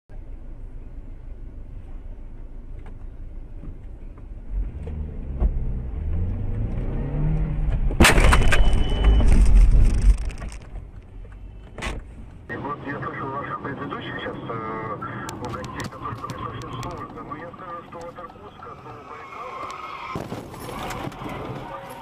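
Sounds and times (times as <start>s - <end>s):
vehicle engine and road noise: 0.1s - 22.0s
collision noise: 7.9s - 12.0s
loud crash impact: 8.0s - 10.4s.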